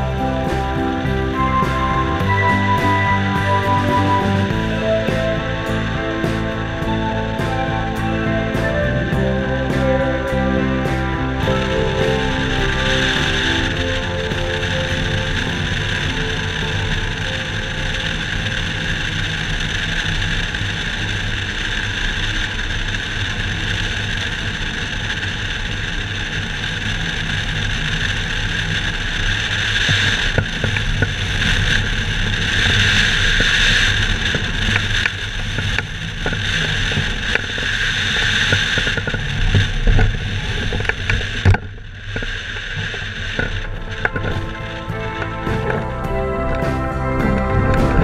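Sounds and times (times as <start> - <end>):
wind rushing over camera: 0.0 - 48.0.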